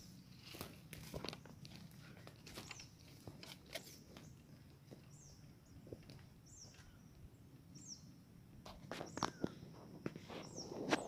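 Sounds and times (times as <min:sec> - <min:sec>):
light footsteps on forest floor: 0:00.0 - 0:07.3
small bird calling: 0:00.0 - 0:08.2, 0:08.8 - 0:11.0.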